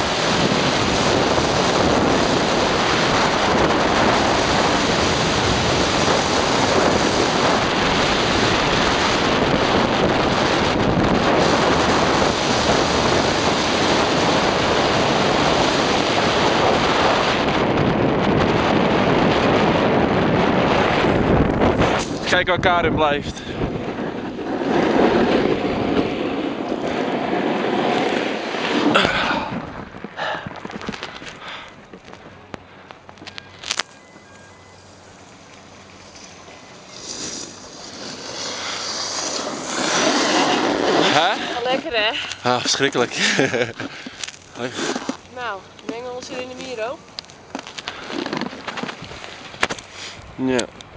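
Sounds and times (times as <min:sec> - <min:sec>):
skis sliding on snow: 0:00.0 - 0:17.4, 0:23.9 - 0:29.6, 0:36.0 - 0:46.9, 0:47.6 - 0:50.2
wind buffeting microphone: 0:00.0 - 0:50.9.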